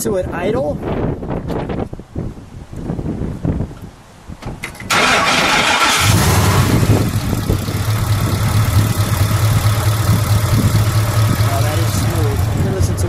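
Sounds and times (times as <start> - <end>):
car engine starting: 4.7 - 13.0
car engine idling: 4.9 - 13.0.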